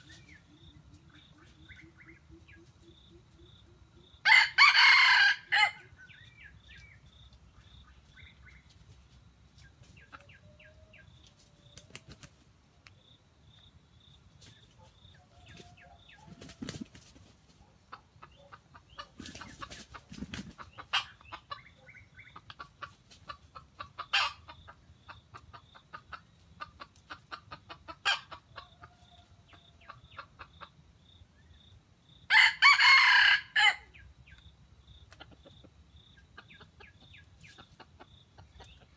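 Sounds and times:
rooster crowing: 4.2 - 5.9, 32.3 - 33.9.

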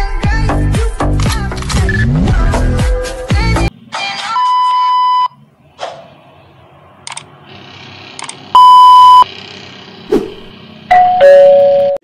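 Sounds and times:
sharp clicks: 7.1 - 7.3
electronic beeps: 8.6 - 9.2
short swish: 10.1 - 10.5.

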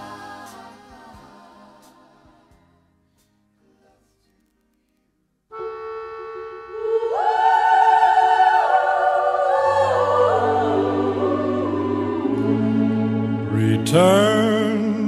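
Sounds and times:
love song music: 0.0 - 4.4, 5.5 - 15.0.

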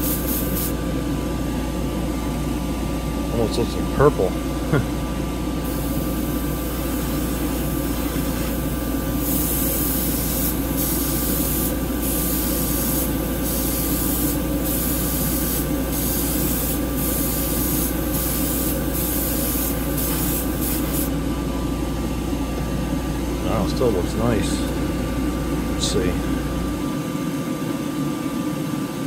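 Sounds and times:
airbrush spraying hiss: 0.0 - 0.8, 5.6 - 21.1
exhaust fan drone: 0.0 - 29.0.

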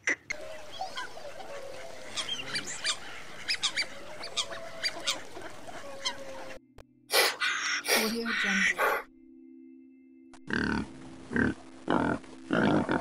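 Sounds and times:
swans calling: 0.0 - 9.1.

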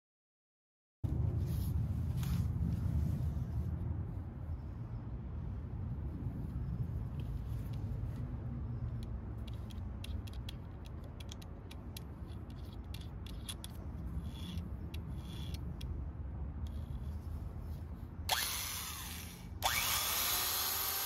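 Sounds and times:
steady low rumble: 1.0 - 20.3
drill chuck clicking and scraping: 9.0 - 16.0, 18.3 - 21.0.

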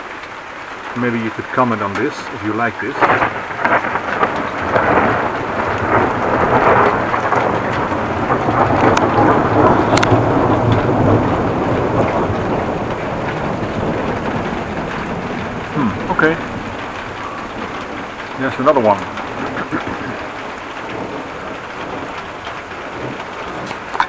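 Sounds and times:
steady rain: 0.0 - 24.0
rolling thunder rumble: 0.9 - 24.0.

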